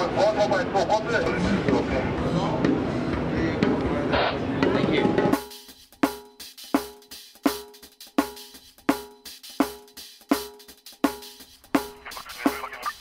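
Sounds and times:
steady drum beat: 0:04.6 - 0:13.0.

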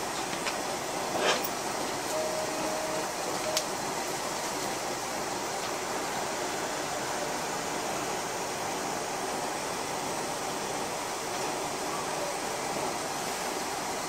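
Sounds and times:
railcar rushing noise: 0:00.0 - 0:14.0.

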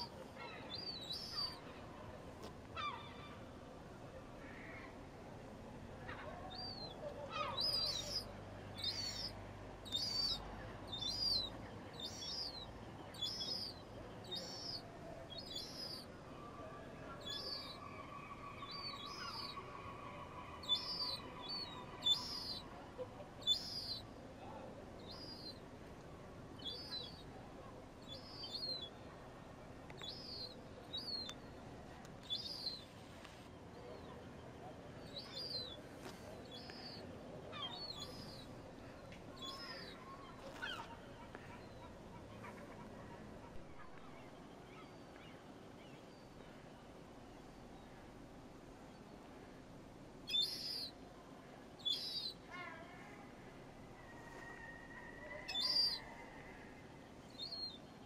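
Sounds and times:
gull chicks begging calls: 0:06.1 - 0:16.1, 0:17.2 - 0:22.7, 0:23.4 - 0:24.1, 0:26.6 - 0:27.3, 0:35.0 - 0:38.6, 0:39.4 - 0:42.9, 0:50.3 - 0:51.0, 0:54.2 - 0:56.6.

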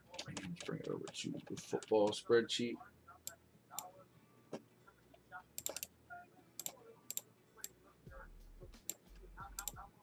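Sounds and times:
mouse and keyboard clicks: 0:05.6 - 0:05.9, 0:06.6 - 0:07.3.

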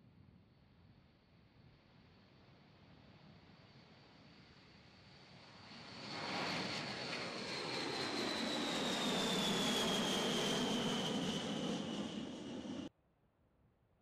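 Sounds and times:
jet bomber roar overhead: 0:05.8 - 0:12.9.

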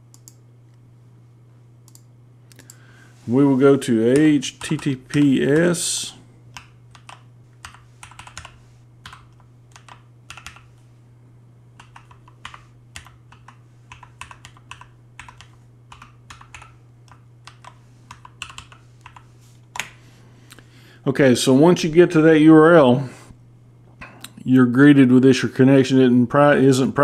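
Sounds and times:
steady low hum: 0:00.0 - 0:27.0
typing on computer keyboard: 0:04.6 - 0:05.6, 0:06.6 - 0:10.7, 0:11.8 - 0:19.9.

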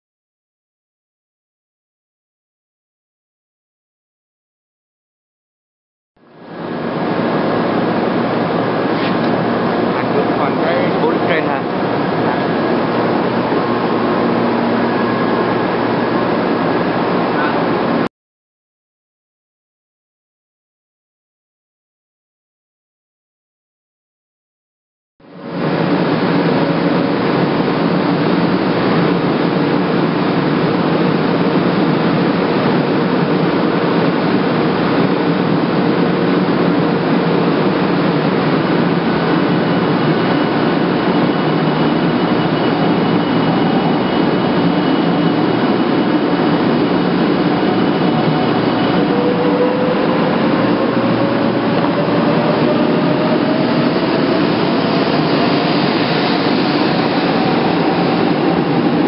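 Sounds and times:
train humming: 0:06.2 - 0:18.1, 0:25.2 - 0:59.0.

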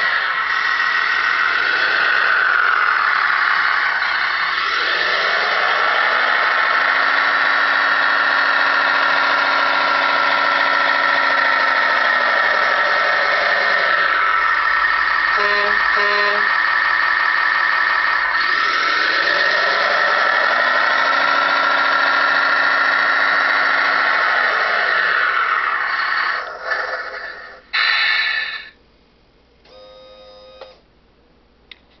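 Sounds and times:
loud hissing: 0:00.0 - 0:07.4, 0:22.6 - 0:28.8
toy track loader whining: 0:00.0 - 0:28.8, 0:29.7 - 0:30.8
electronic beep: 0:15.4 - 0:16.5.

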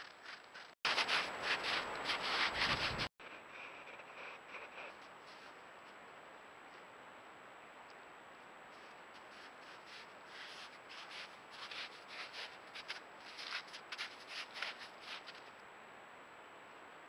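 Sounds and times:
scratchy rubbing and sniffing: 0:00.2 - 0:05.6, 0:08.8 - 0:15.4.

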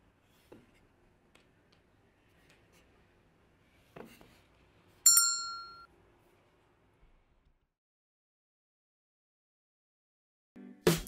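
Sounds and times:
bright bell ding: 0:05.1 - 0:05.9.

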